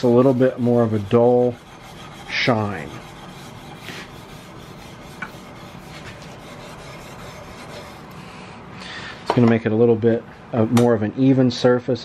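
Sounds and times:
sandpaper rubbing on steel: 0.0s - 8.2s.

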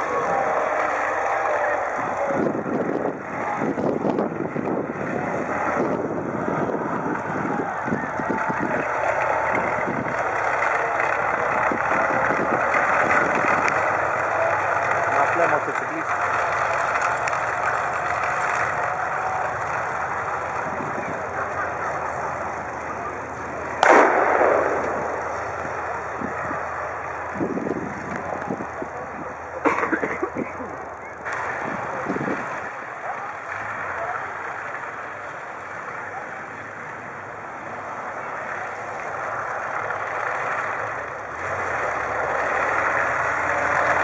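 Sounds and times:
tank engine and tracks running: 0.0s - 44.0s
loud bang: 23.8s - 25.6s.

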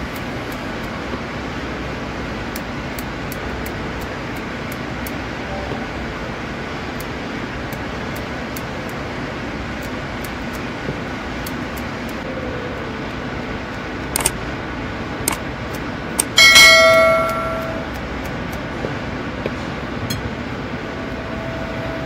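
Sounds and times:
workshop background hiss: 0.0s - 22.0s
loud bell chime: 16.4s - 17.9s.

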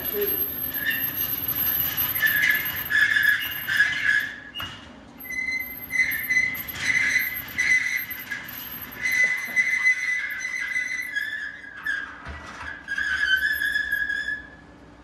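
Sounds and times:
casters squealing: 0.0s - 4.6s, 5.2s - 12.1s.

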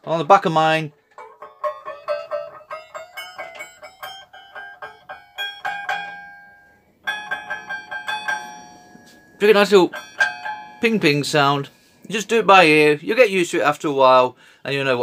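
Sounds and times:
plucked saw blade pinging: 1.2s - 11.8s.

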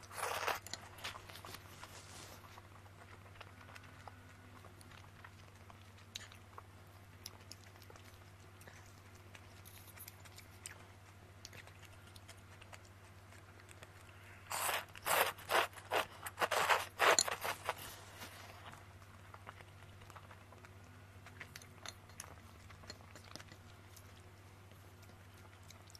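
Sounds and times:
soft chewing: 0.0s - 25.9s
loud noodle slurps: 14.5s - 17.8s.

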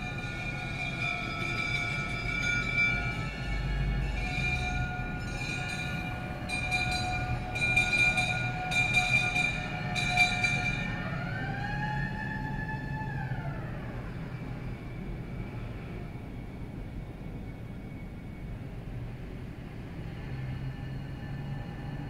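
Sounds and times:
fire engine bells ringing: 0.0s - 14.5s
siren wailing: 8.3s - 14.6s.

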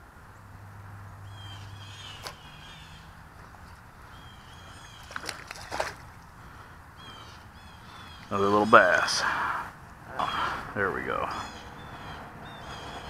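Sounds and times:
birds chirping faintly: 0.0s - 13.0s
rustling: 4.7s - 7.5s.

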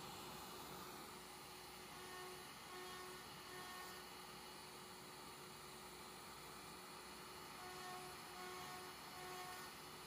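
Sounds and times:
cnc router cutting plastic: 1.7s - 4.2s, 7.3s - 10.0s.

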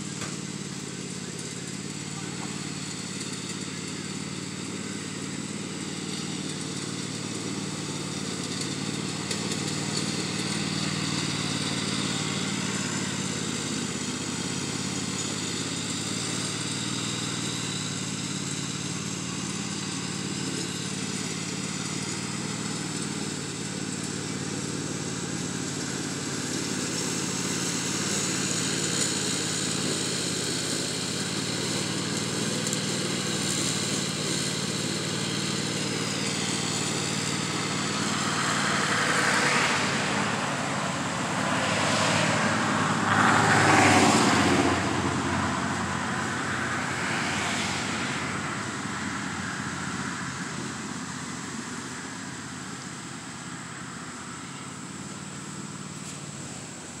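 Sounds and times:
riding lawn mower engine: 0.0s - 57.0s.

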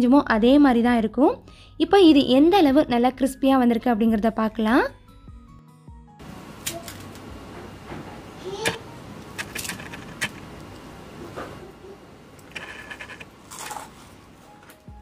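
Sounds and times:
crisp cookies cracking apart: 12.6s - 14.0s.

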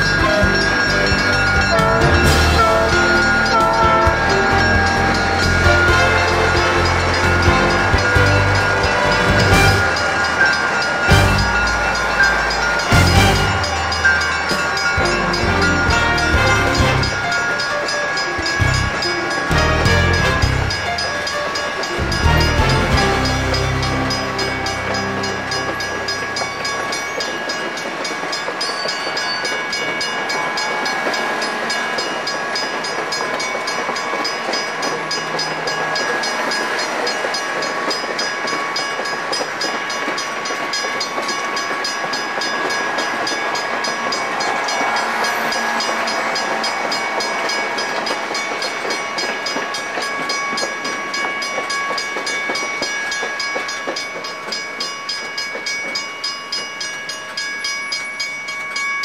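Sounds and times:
high ringing tones: 0.0s - 59.0s
train wheels rolling on rails: 0.0s - 59.0s.

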